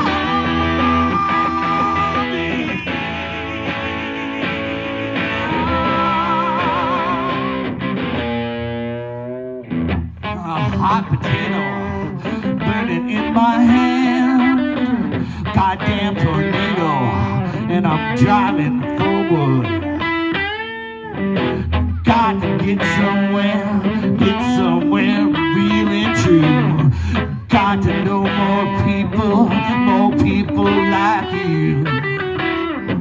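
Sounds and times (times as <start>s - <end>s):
wavering held guitar note: 0.0s - 12.4s
electric guitars playing: 0.0s - 33.0s.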